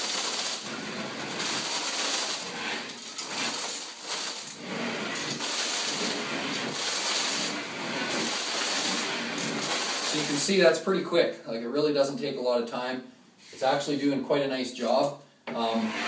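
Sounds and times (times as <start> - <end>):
putty knife scraping ceiling: 0.0 - 10.4.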